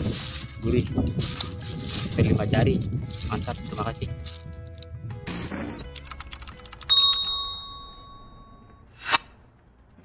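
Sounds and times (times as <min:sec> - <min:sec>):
typing clicks: 0:05.9 - 0:07.3
bright bell ding: 0:06.9 - 0:08.9.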